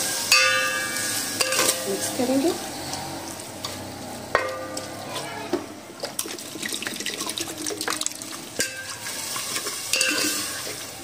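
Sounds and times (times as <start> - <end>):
chicken frying: 0.0 - 5.1, 6.0 - 11.0
water pouring into pot: 6.0 - 11.0
spoon scraping pot: 8.6 - 10.8.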